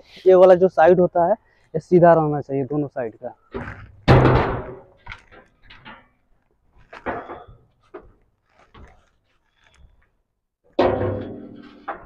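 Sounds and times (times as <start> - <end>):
steel plate knocks and scrapes: 3.6 - 6.1, 6.9 - 9.0, 10.8 - 12.0.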